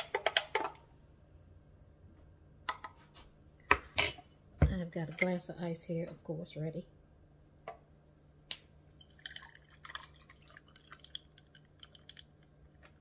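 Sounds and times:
juice pouring into glass: 8.9 - 13.0
ice clinking: 9.0 - 13.0.

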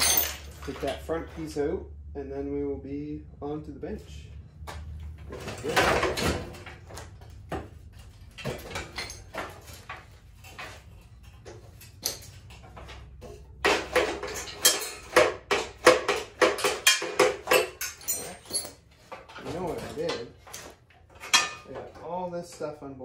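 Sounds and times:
steel parts knocking and clanking: 0.0 - 1.1, 5.2 - 22.8.

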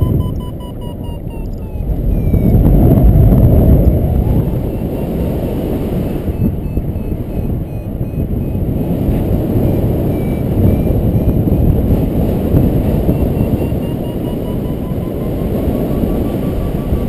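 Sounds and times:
variometer beeps: 0.0 - 17.0
wind buffeting microphone: 0.0 - 17.0.

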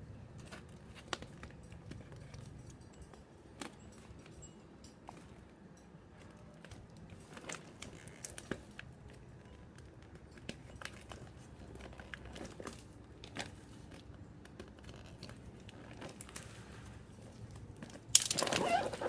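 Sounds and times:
paper and tape crinkling and tearing: 17.5 - 19.0.

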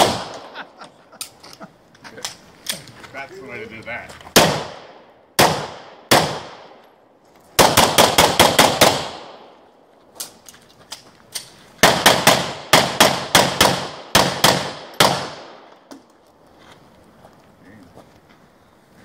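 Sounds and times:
handgun shots: 0.0 - 0.5.

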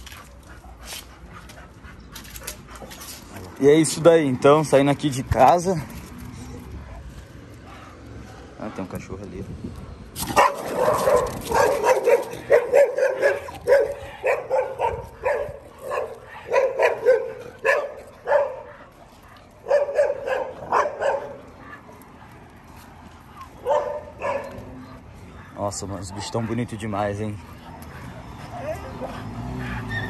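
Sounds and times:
dog barking: 10.3 - 18.9, 19.6 - 21.8, 23.6 - 24.7.

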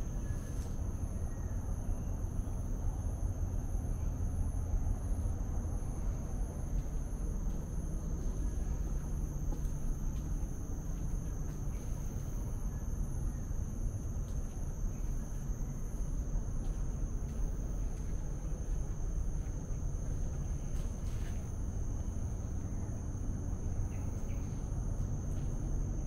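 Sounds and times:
insects droning: 0.0 - 26.0
low background rumble: 0.0 - 26.0.

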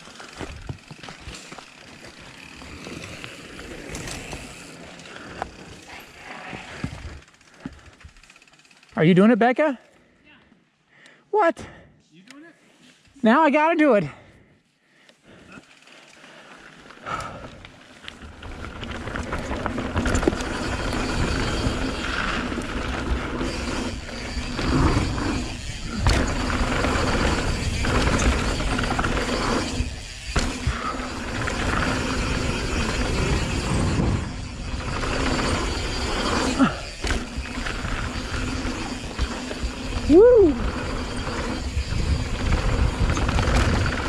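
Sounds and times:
bike tyre roar on dirt: 0.0 - 9.0, 15.3 - 44.0
bike chain clattering: 0.0 - 9.2, 17.0 - 44.0
wind noise on microphone: 41.6 - 44.0.

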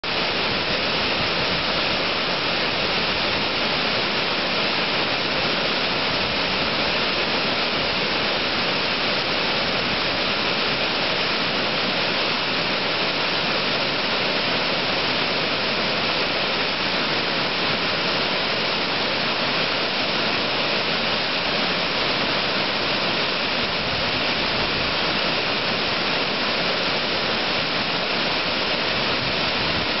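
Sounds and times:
waterfall rushing: 0.0 - 30.0.

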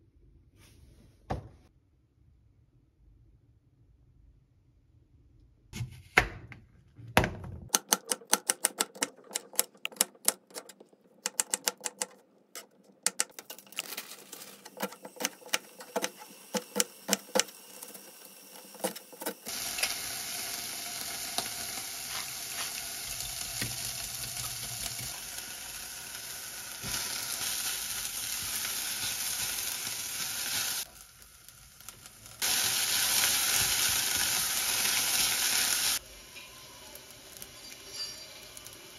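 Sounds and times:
spatula stirring vegetables: 7.8 - 20.4, 21.0 - 25.4, 32.4 - 36.0
vegetables sizzling in saucepan: 13.9 - 38.9.

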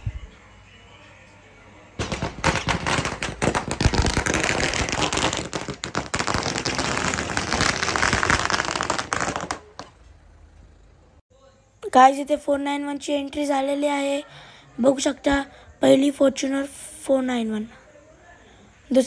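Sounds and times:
firecrackers cracking: 2.0 - 10.0.

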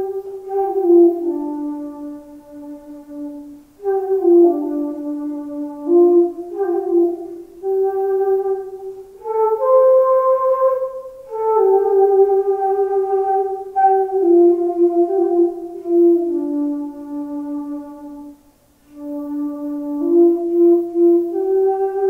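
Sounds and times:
solo flute melody: 0.0 - 22.0.

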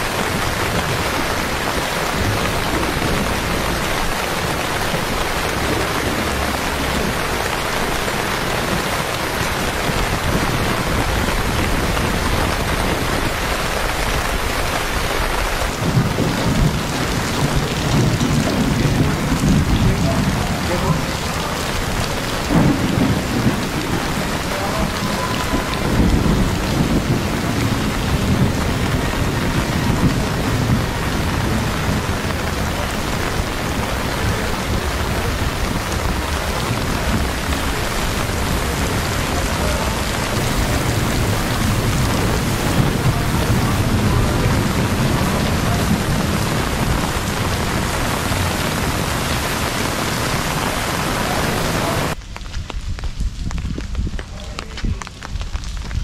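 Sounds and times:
heavy rain on pavement: 0.0 - 56.0
low rumbles: 0.0 - 56.0.

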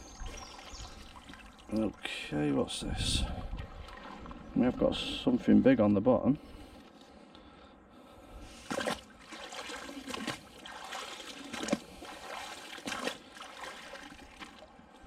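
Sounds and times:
water trickling: 0.0 - 5.3, 9.2 - 14.7
water splashing: 0.0 - 5.4, 8.6 - 14.8.

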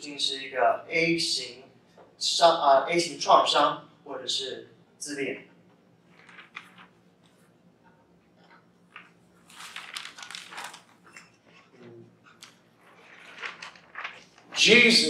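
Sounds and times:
paper rustling and crinkling: 6.1 - 7.4, 8.9 - 11.6, 12.3 - 15.0.

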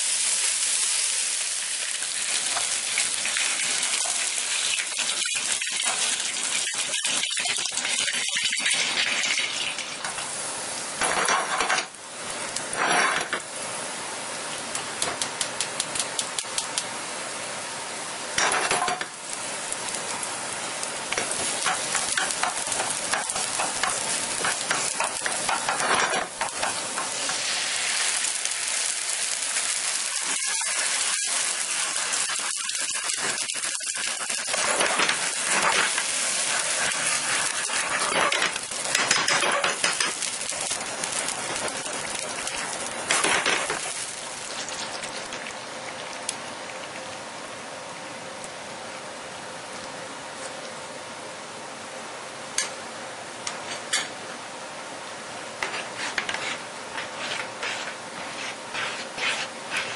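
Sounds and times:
tomato sauce sizzling: 0.0 - 11.1, 15.7 - 47.6
garlic sizzling in oil: 0.0 - 48.7, 55.0 - 59.9
metal tongs scraping a pan: 21.6 - 27.4, 30.1 - 44.0.

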